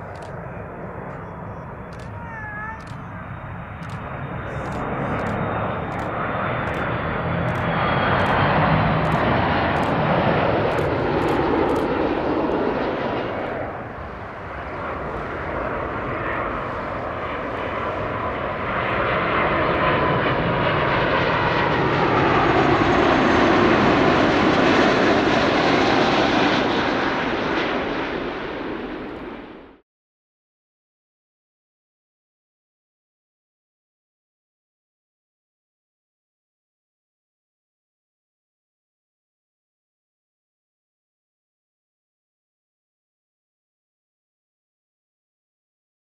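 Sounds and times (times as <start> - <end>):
jet airliner passing overhead: 0.0 - 29.8.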